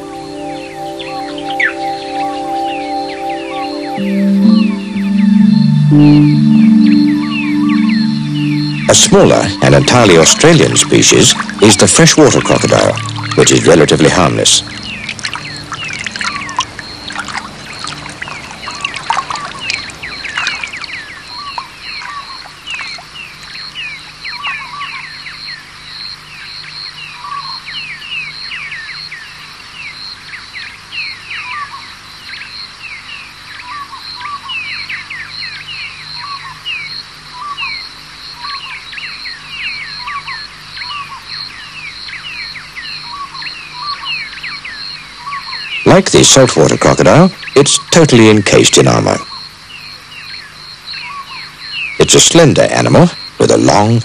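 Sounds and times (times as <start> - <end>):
pulsing high-pitched call: 0.0 - 23.0
birds chirping: 0.0 - 54.0.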